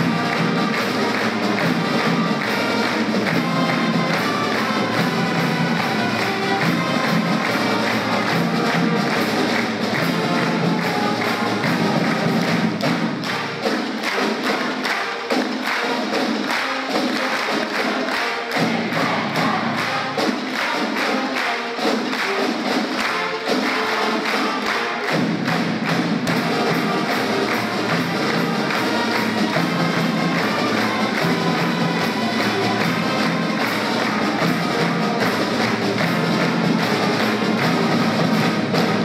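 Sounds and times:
crowd clapping along: 0.0s - 39.0s
pep band playing: 0.0s - 39.0s.

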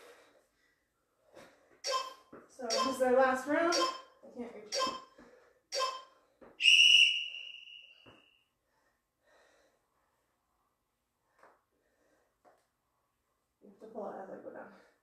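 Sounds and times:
high electronic beep: 1.9s - 3.0s, 3.7s - 5.1s, 5.8s - 7.0s.

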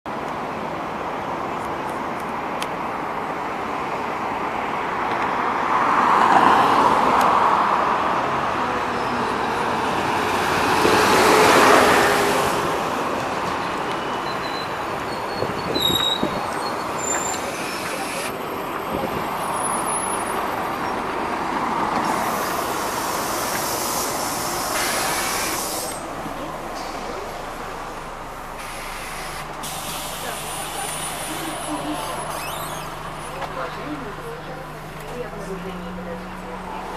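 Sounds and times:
bus pulling in: 0.1s - 36.9s
road traffic: 0.1s - 36.9s
vehicles swishing past: 1.5s - 36.9s
bus doors hissing open: 13.7s - 21.0s, 21.9s - 34.2s
brake squeaks: 13.9s - 18.4s, 28.5s - 33.6s.

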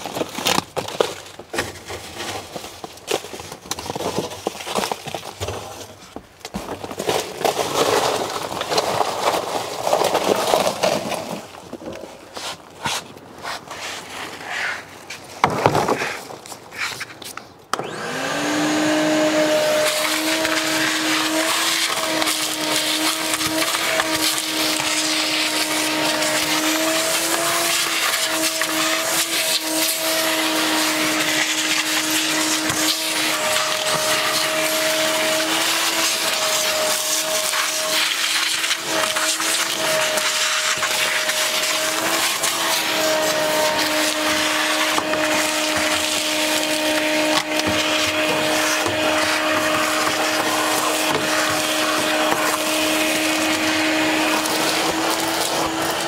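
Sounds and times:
electric power tool whining: 17.7s - 56.0s.

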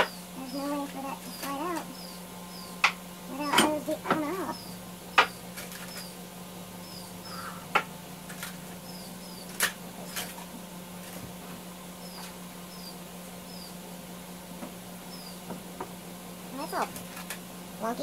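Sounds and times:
fan humming: 0.0s - 18.0s
faint high chirps: 1.2s - 2.8s.

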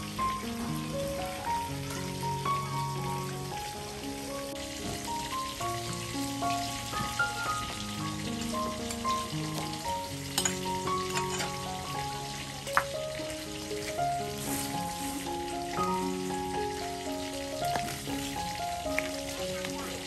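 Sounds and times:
soft melodic background music: 0.0s - 20.0s
water boiling in pot: 0.0s - 20.0s.

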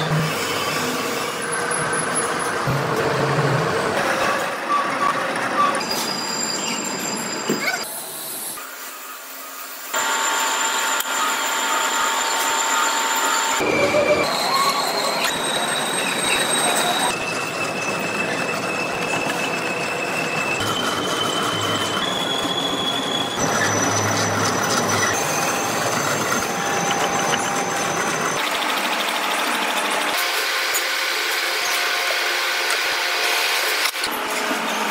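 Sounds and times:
grinding metal-cutting noise: 9.9s - 34.9s
high whine of cutting tool: 9.9s - 34.9s.

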